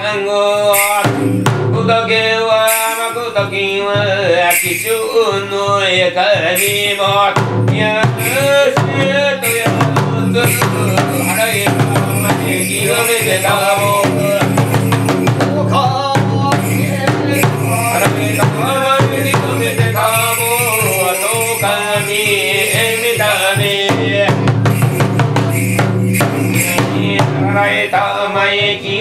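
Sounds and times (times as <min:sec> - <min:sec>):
taiko drum beating: 0:07.4 - 0:20.0, 0:23.8 - 0:27.7.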